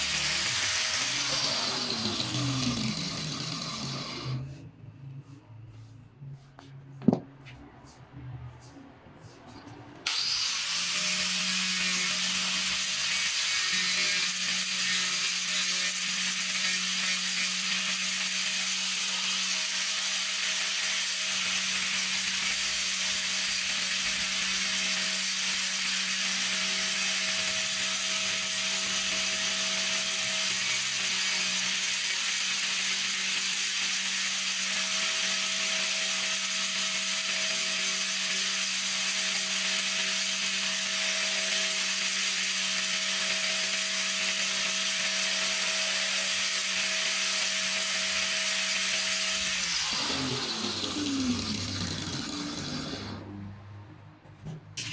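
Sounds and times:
wood grinding hiss: 0:00.0 - 0:04.6
angle grinder motor whine: 0:00.0 - 0:04.8, 0:10.1 - 0:53.5.

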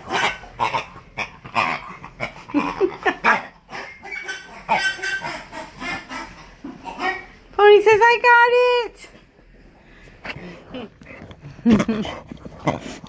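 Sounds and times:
dog grunting: 0:00.0 - 0:07.4, 0:10.3 - 0:13.0.

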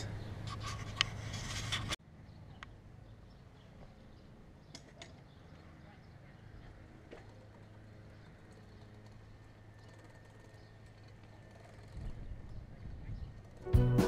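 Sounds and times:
rubbing on microphone: 0:00.4 - 0:02.0
bicycle rolling on brick: 0:06.7 - 0:13.8.

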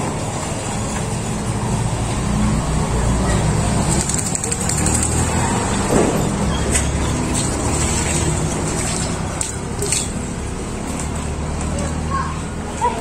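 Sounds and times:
vehicle engine rumbling: 0:00.0 - 0:13.0
water splashing over dog: 0:03.3 - 0:11.9.

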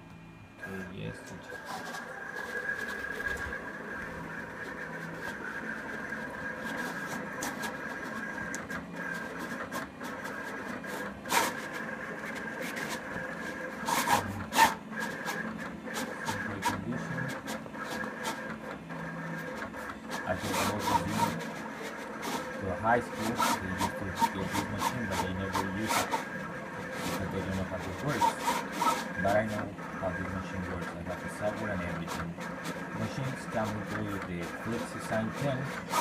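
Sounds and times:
cutter motor whine: 0:00.0 - 0:36.0.

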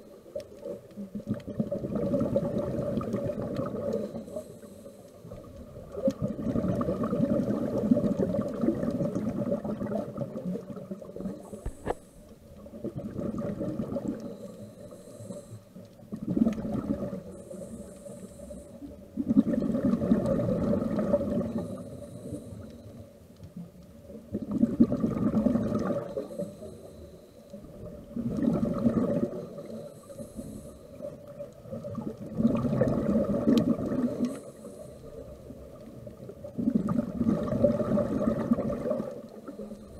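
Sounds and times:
rush of exhaled bubbles: 0:00.5 - 0:04.2, 0:05.2 - 0:12.0, 0:12.6 - 0:14.5, 0:16.1 - 0:17.4, 0:19.2 - 0:22.6, 0:24.3 - 0:26.6, 0:27.7 - 0:34.7, 0:35.5 - 0:39.9
regulator hiss on inhale: 0:03.8 - 0:06.0, 0:11.1 - 0:12.5, 0:14.1 - 0:16.0, 0:17.1 - 0:19.2, 0:21.4 - 0:23.3, 0:25.7 - 0:27.8, 0:29.2 - 0:31.4, 0:34.0 - 0:35.9, 0:39.0 - 0:39.9.

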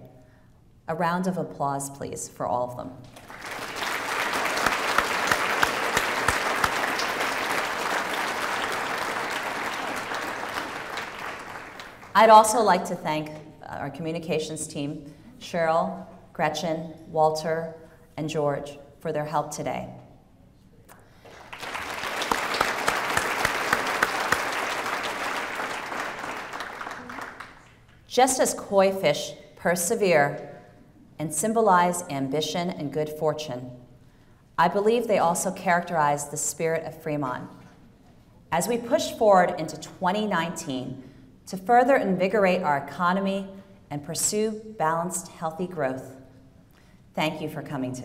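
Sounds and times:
audience applauding: 0:03.2 - 0:12.1, 0:21.2 - 0:27.8.

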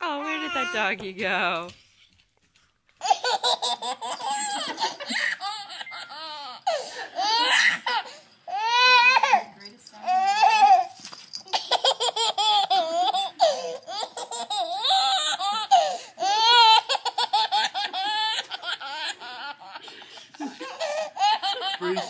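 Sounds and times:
baby laughing: 0:03.0 - 0:09.4, 0:11.5 - 0:22.0.

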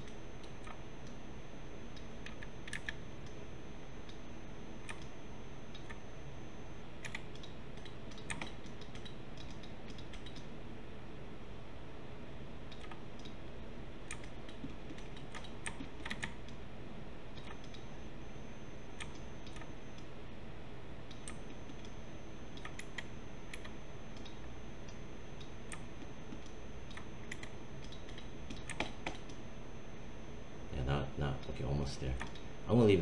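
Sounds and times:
keyboard keys clicking: 0:07.0 - 0:10.5, 0:25.7 - 0:29.4.

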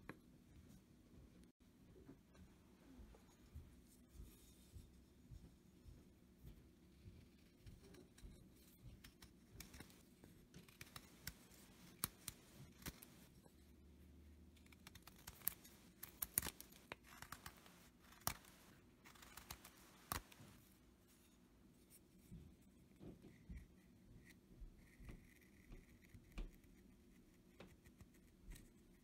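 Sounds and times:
knife carving wood shavings: 0:07.2 - 0:20.6.

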